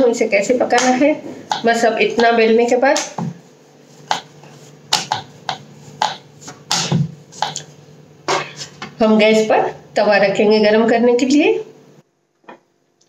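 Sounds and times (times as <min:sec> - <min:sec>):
rolling pin knocking on wooden board: 0:01.5 - 0:02.4, 0:04.0 - 0:07.7.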